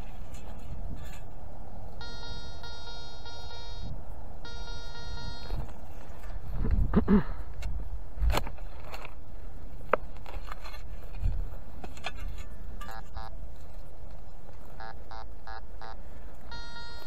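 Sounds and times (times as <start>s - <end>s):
steady low rumble: 0.0s - 17.0s
metal detector beeps: 2.0s - 5.7s, 12.8s - 13.4s, 14.8s - 17.0s.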